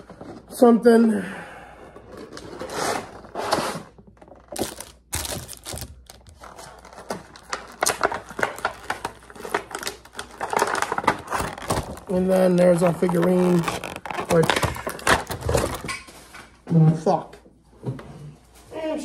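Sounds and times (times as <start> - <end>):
packaging rustling and crinkling: 2.2 - 16.4
sharp plastic clicks and crackles: 4.4 - 16.0.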